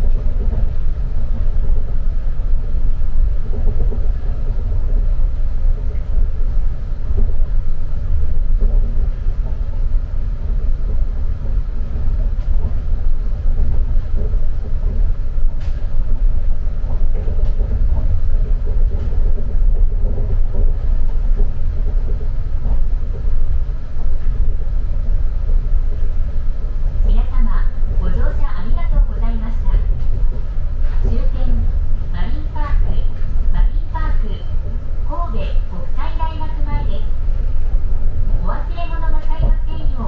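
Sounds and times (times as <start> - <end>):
train car low rumble: 0.0 - 40.0.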